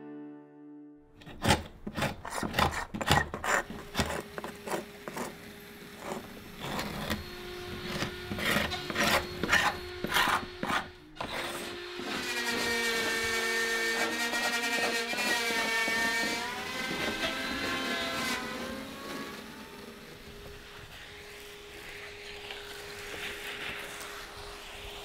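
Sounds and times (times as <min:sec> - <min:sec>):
hand scraper rasping paint off wood: 0:01.2 - 0:19.5
power drill running: 0:03.1 - 0:20.6.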